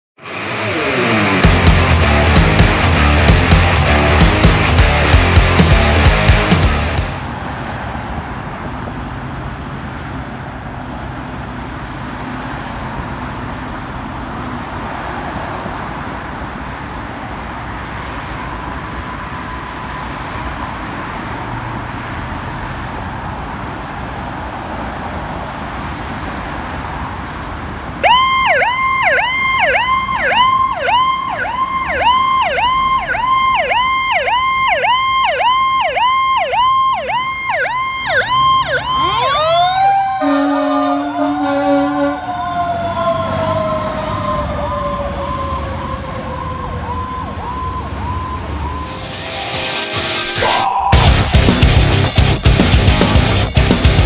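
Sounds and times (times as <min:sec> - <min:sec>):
street noise: 0:00.2 - 0:54.0
fire engine rumble: 0:25.3 - 0:48.8
electronic siren warble: 0:28.0 - 0:49.2.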